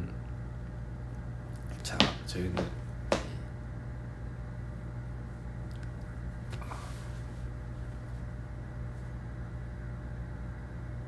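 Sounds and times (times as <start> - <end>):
air conditioner humming: 0.0 - 11.0.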